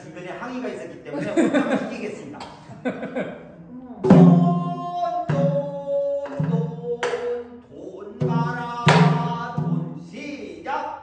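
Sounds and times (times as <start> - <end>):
man singing long held notes: 4.1 - 10.1.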